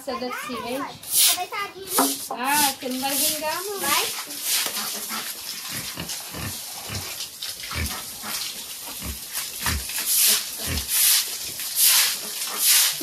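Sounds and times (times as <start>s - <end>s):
broom scrubbing wet floor: 0.6s - 13.0s
pigs grunting: 4.8s - 11.0s.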